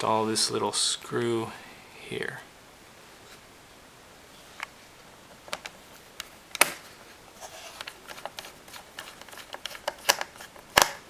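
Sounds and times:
screw ticking and scraping: 7.5 - 10.9.

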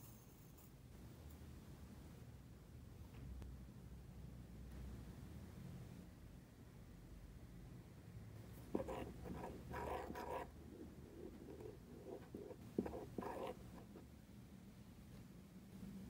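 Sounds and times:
spoon scraping in ceramic mug: 8.6 - 14.0.

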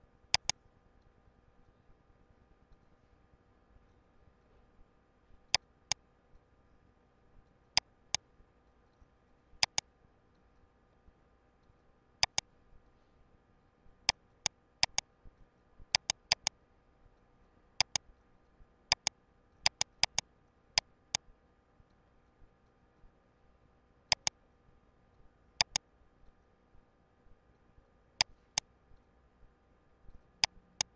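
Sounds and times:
faint steady hum: 0.0 - 30.9
computer mouse buttons clicking: 0.3 - 0.6, 9.6 - 9.9, 12.2 - 12.5, 14.8 - 15.1, 15.9 - 16.6, 17.8 - 18.0, 18.9 - 21.2, 24.1 - 24.4, 25.6 - 25.8.

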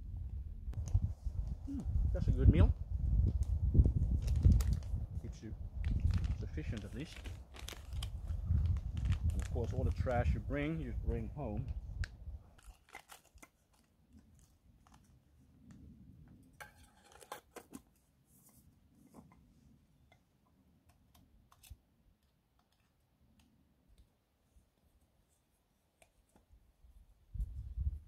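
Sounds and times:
plastic pouch crinkling: 4.1 - 5.0, 5.8 - 10.1, 12.6 - 15.1.

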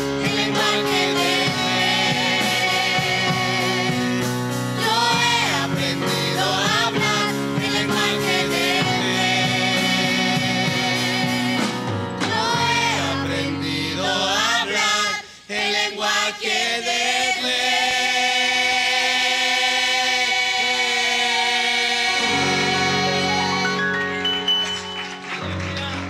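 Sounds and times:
group singing praise song: 0.0 - 23.9.

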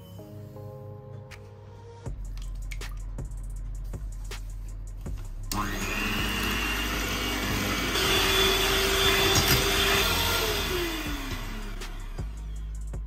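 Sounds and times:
electric hand mixer whirring: 5.5 - 12.6.

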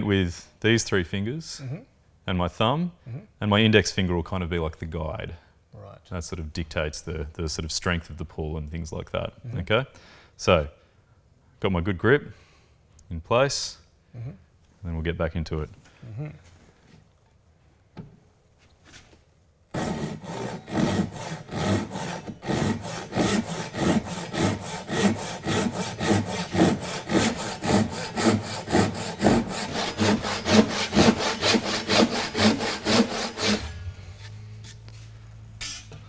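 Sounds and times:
hand saw cutting wood: 19.7 - 33.9.

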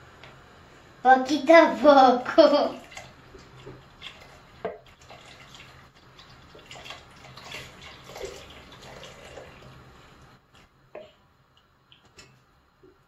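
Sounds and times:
liquid pouring and trickling: 2.8 - 10.7.

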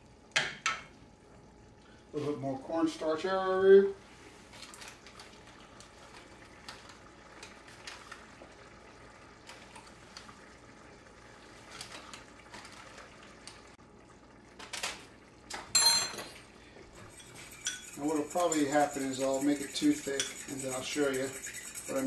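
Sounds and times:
stew bubbling in a pot: 4.2 - 15.8, 16.4 - 22.0
metal clink against a pot: 15.7 - 16.3.

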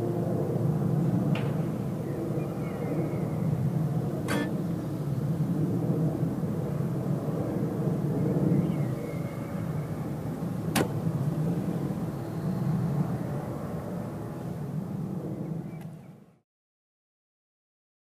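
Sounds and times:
low outdoor rumble: 0.0 - 15.7
sharp click: 4.3 - 4.6.

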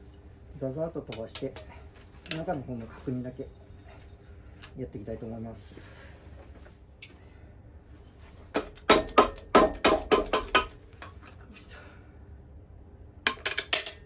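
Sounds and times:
mallet knocking on metal housing: 8.6 - 10.7.

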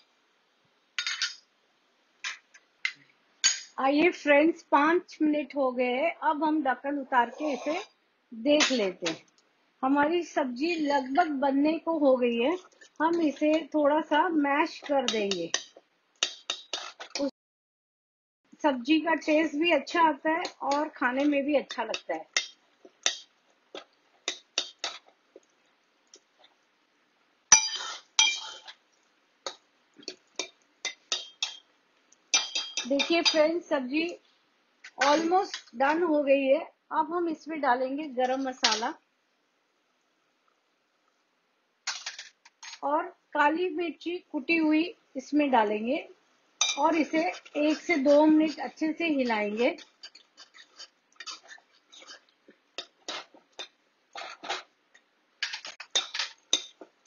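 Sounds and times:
metal spoon stirring in pot: 12.6 - 17.3, 19.8 - 26.6, 27.5 - 33.6, 46.6 - 54.7, 55.4 - 57.0
metal ladle clinking in pot: 27.5 - 28.7, 30.4 - 31.7, 32.3 - 33.4, 46.6 - 46.8.

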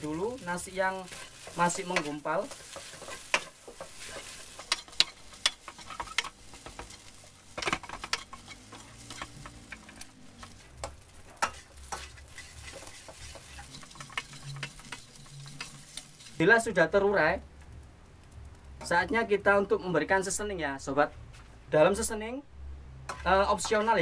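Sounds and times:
frying sizzle: 0.0 - 20.8, 23.0 - 24.0
spatula scraping metal wok: 0.8 - 16.4, 23.1 - 24.0.

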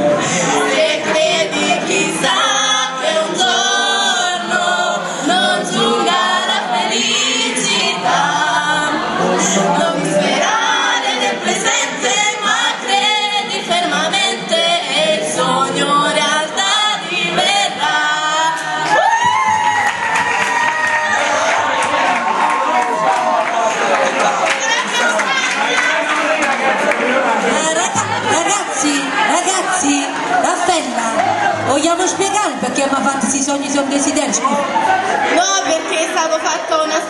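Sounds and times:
group singing into a microphone: 0.0 - 20.4, 23.5 - 37.0.

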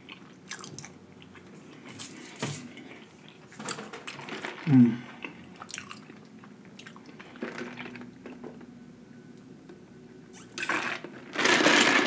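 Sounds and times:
slurping through a straw: 10.4 - 12.0.

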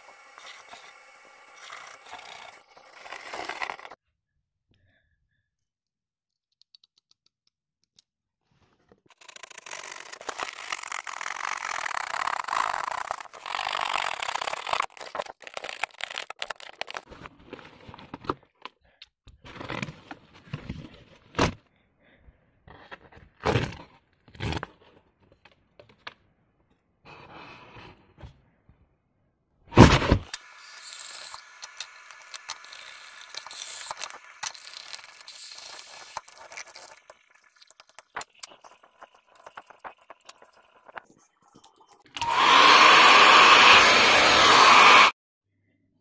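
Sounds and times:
cardboard box tearing: 2.0 - 4.0, 9.1 - 17.1.

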